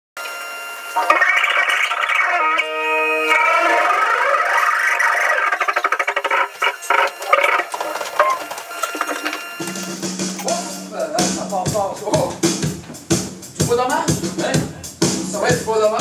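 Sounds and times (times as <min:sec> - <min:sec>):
sustained musical tones: 0:00.7 - 0:11.4.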